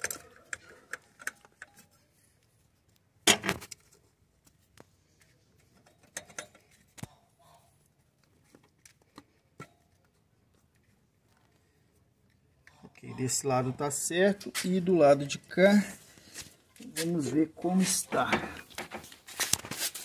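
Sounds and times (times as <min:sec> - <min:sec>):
clicks and knocks of handling: 0:02.9 - 0:07.2.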